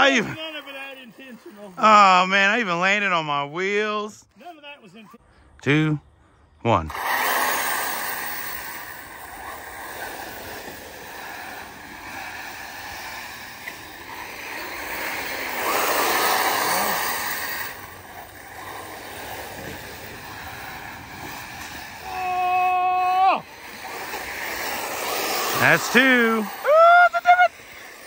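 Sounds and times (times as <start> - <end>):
tyres rushing on loose dirt: 0.0 - 3.8, 6.9 - 28.0
faint electric motor whine: 6.9 - 28.0.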